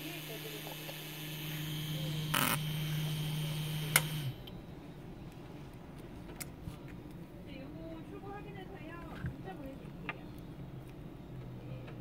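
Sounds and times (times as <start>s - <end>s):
small motor humming and whining: 0.0s - 4.5s.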